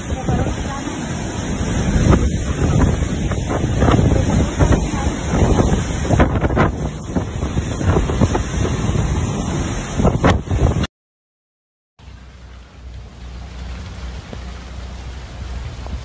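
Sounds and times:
heavy rain hiss: 0:00.0 - 0:10.8, 0:12.0 - 0:16.0
wind gusting against microphone: 0:00.0 - 0:10.9.

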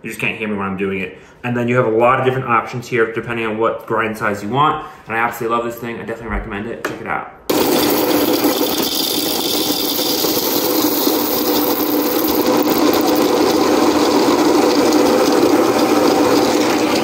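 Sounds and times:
coffee grinder whirring: 0:07.5 - 0:17.0.

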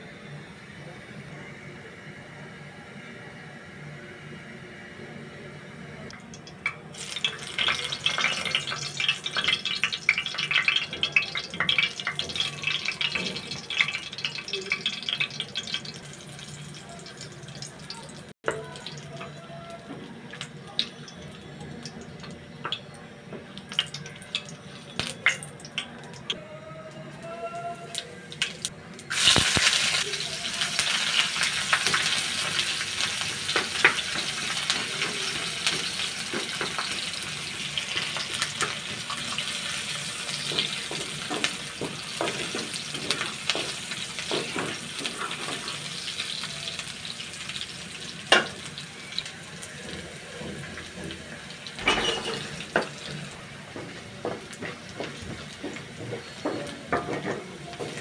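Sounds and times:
onions sizzling in oil: 0:06.9 - 0:19.8, 0:27.9 - 0:58.0
spatula scraping pan: 0:54.6 - 0:58.0.

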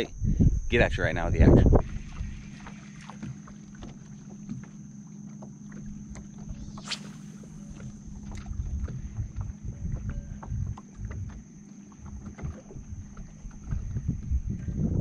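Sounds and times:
faint steady hum: 0:00.0 - 0:15.0
water lapping against boat hull: 0:01.8 - 0:06.6, 0:07.7 - 0:14.7
fishing rod cast whoosh: 0:06.6 - 0:08.5.

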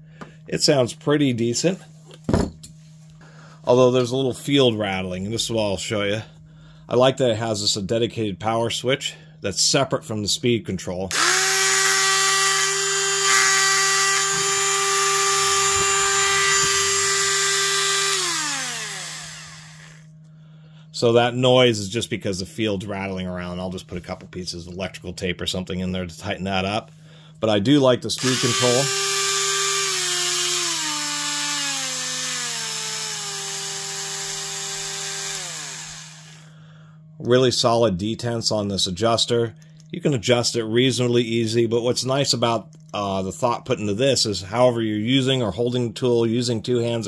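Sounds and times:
steady low hum: 0:00.0 - 0:47.0
rotary tool motor whining: 0:11.1 - 0:20.1, 0:28.2 - 0:36.5
motor rattling in housing: 0:11.1 - 0:20.4, 0:28.2 - 0:36.5.

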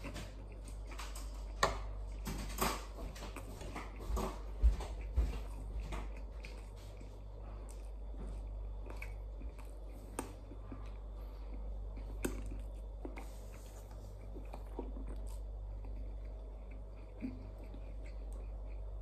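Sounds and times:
person chewing food: 0:00.0 - 0:19.0
steady low hum: 0:00.0 - 0:19.0.

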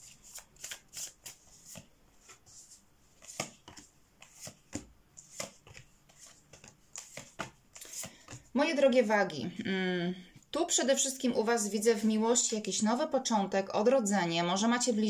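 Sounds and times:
cards flicking and snapping: 0:00.3 - 0:01.9, 0:03.2 - 0:08.4
cards slapping onto table: 0:03.2 - 0:08.4.

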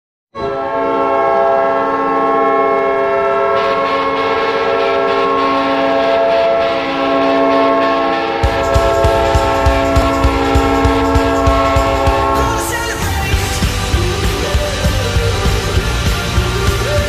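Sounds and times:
air horn blast: 0:00.4 - 0:13.6
rushing noise: 0:03.2 - 0:17.0.

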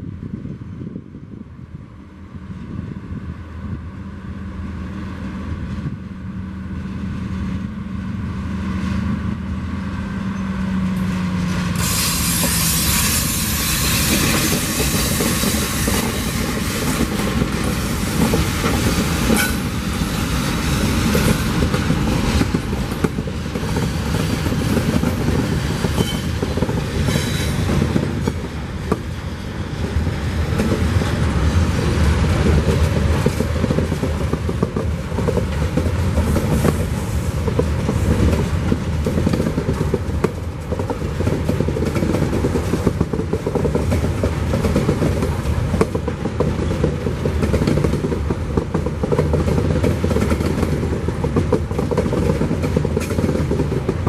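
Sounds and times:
diesel locomotive engines: 0:00.0 - 0:54.0
train rushing past: 0:00.0 - 0:54.0
wheels clicking over rail joints: 0:10.8 - 0:54.0.

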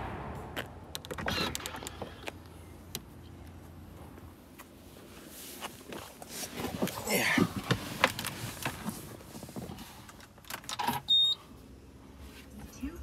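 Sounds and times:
person climbing into car seat: 0:05.5 - 0:10.4.

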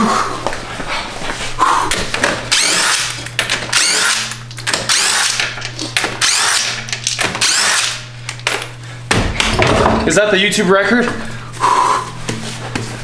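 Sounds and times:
impact wrench hammering: 0:01.9 - 0:10.1.

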